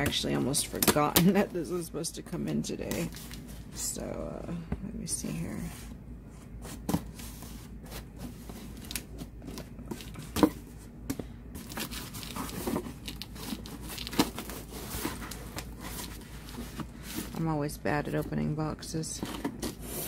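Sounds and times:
cardboard flaps rustling and scraping: 0:05.5 - 0:10.9, 0:11.5 - 0:17.6.

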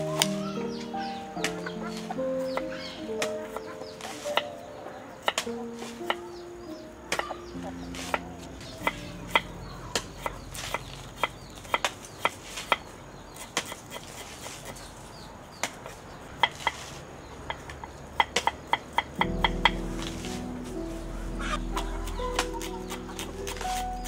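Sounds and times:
cleaver chopping on wooden block: 0:18.2 - 0:19.7.

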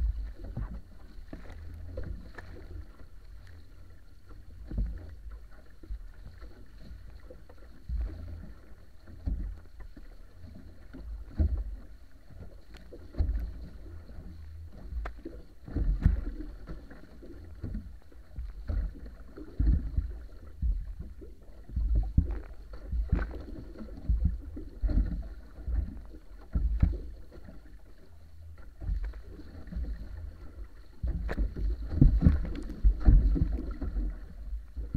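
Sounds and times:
water rushing and splashing along hull: 0:00.0 - 0:34.9
low rumble: 0:19.8 - 0:34.9.

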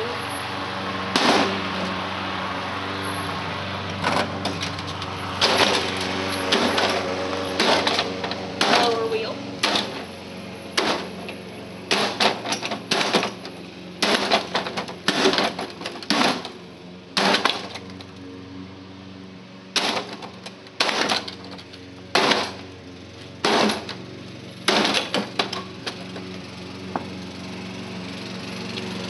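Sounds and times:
sledgehammer clanging on sheet metal: 0:23.4 - 0:24.0.

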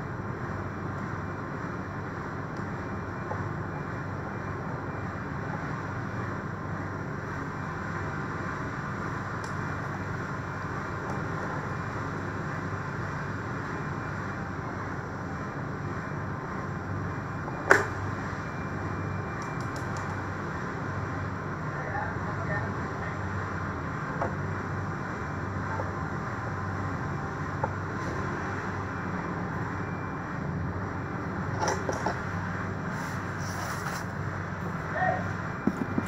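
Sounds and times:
steady background noise: 0:00.0 - 0:36.0.

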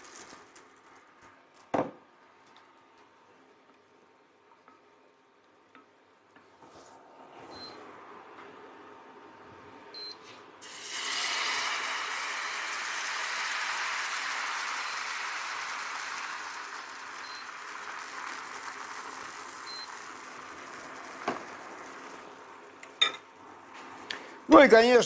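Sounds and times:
batter sizzling in frying pan: 0:10.6 - 0:22.8.

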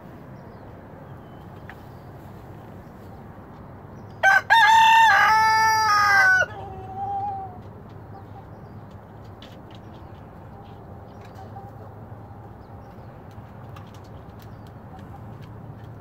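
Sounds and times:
rooster crowing: 0:04.2 - 0:07.4.

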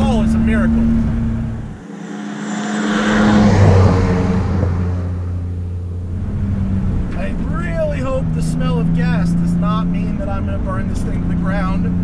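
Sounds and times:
car engine running: 0:00.0 - 0:12.0
rush of noise: 0:01.1 - 0:06.5.

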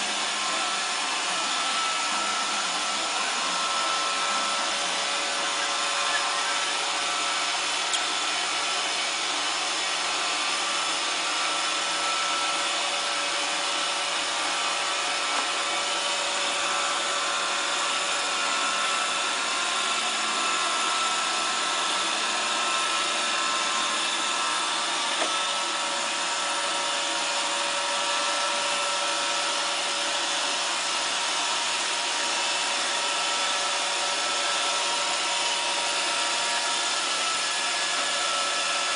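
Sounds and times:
robot vacuum whirring: 0:00.0 - 0:38.9.

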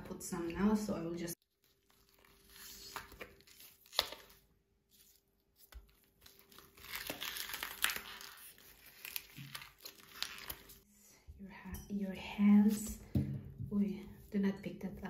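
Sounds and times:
silicone ice tray crackling: 0:05.8 - 0:10.7.

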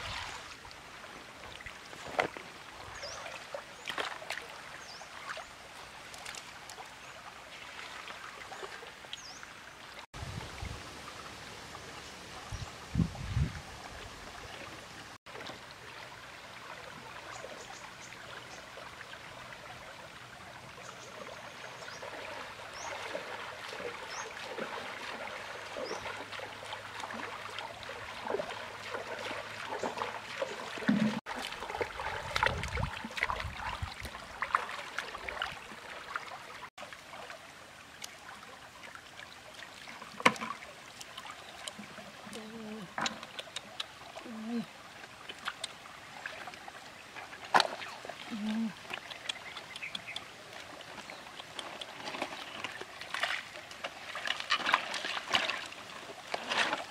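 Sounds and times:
water trickling over stones: 0:00.0 - 0:56.9
small splashes and clicks: 0:03.2 - 0:04.6, 0:06.0 - 0:07.0, 0:39.1 - 0:56.9.

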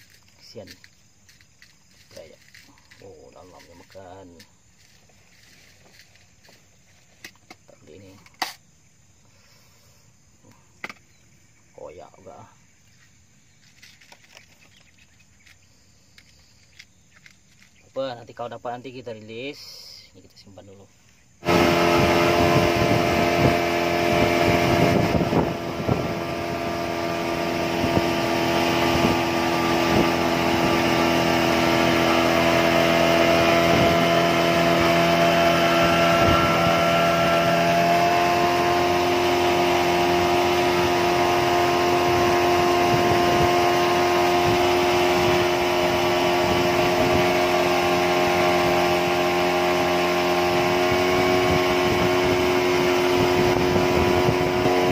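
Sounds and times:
outboard motor running: 0:21.4 - 0:54.9.

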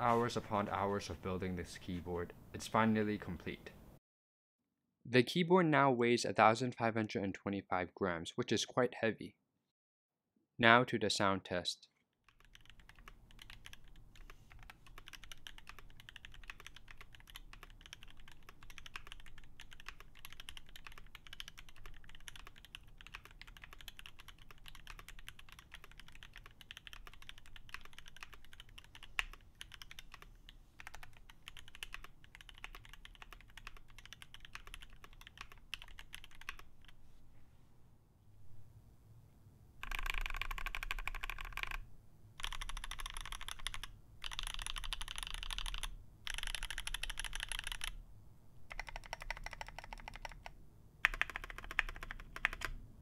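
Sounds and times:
fast mechanical keyboard typing: 0:12.3 - 0:37.0, 0:39.8 - 0:41.8, 0:42.4 - 0:48.0, 0:48.7 - 0:52.8.

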